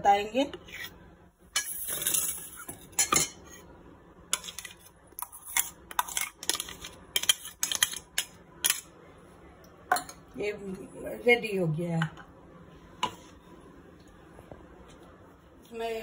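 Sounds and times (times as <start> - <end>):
cutlery clinking and scraping container: 1.6 - 3.4, 4.4 - 8.9.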